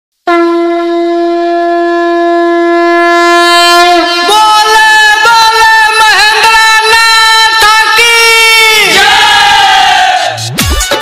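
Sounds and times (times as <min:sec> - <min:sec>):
long wind instrument note: 0:00.2 - 0:05.1.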